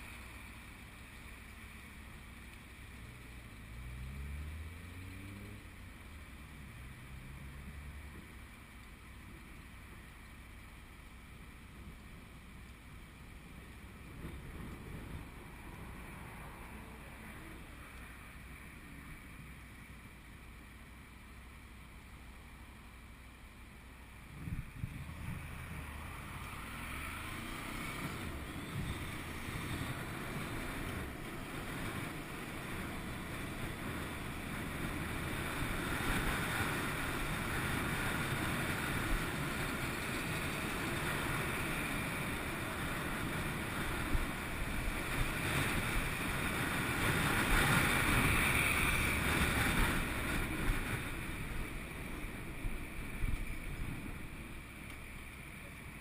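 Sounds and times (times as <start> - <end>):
wind rushing over microphone: 24.3 - 54.7.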